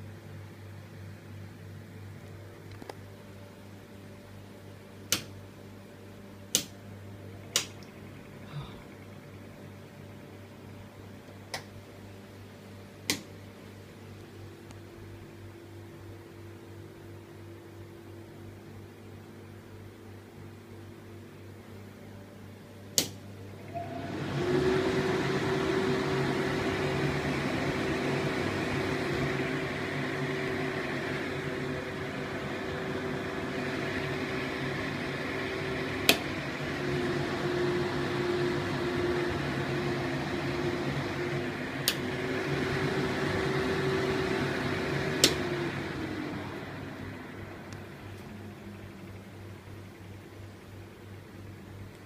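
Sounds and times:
exhaust fan whirring hum: 0.0s - 52.0s
switch clicks: 5.1s - 5.4s, 6.5s - 6.8s, 7.5s - 8.0s, 22.9s - 23.2s, 45.2s - 45.4s.

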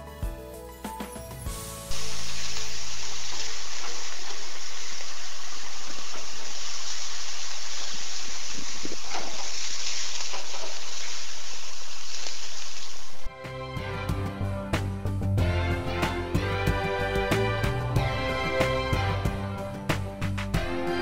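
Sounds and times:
meat sizzling on a grill: 1.5s - 13.3s.

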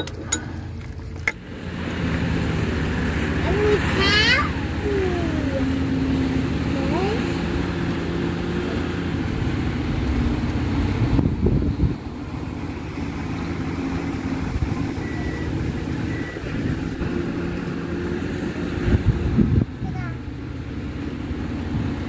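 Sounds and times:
diesel engine running: 0.0s - 22.0s.

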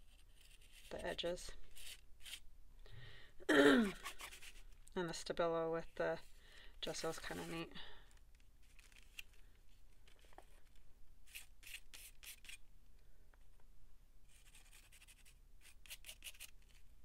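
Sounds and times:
rubbing and scratching on paper: 0.0s - 2.4s, 3.9s - 4.8s, 7.1s - 7.7s, 10.1s - 12.6s, 14.3s - 16.9s.

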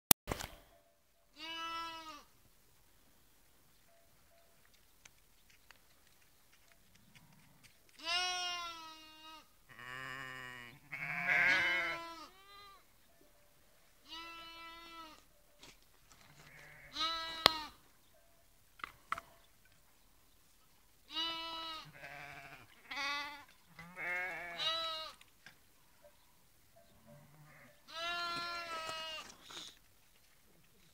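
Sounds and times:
sheep and lambs bleating: 1.4s - 2.3s, 8.0s - 12.9s, 14.0s - 15.2s, 16.3s - 17.8s, 21.1s - 25.2s, 27.2s - 29.7s.

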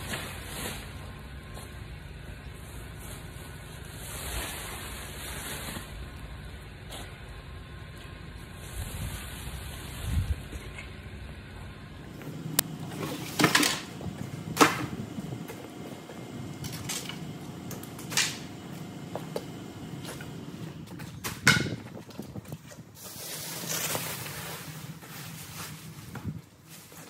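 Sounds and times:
objects knocking and bumping: 12.1s - 22.8s
plastic sheeting crinkling: 22.2s - 27.0s.

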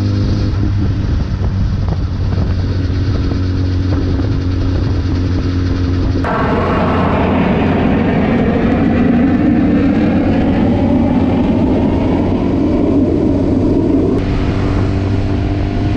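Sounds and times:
jet fighter roaring overhead: 0.0s - 15.9s
motorcycle engine running: 0.0s - 15.9s
wind noise: 0.0s - 15.9s.

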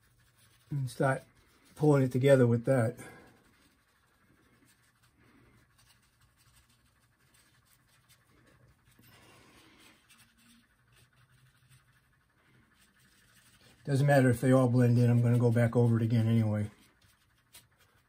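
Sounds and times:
brush rubbing wet paint: 0.0s - 18.0s.

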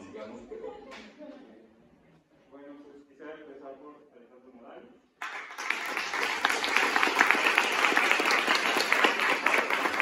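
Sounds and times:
audience applause: 5.2s - 10.0s.

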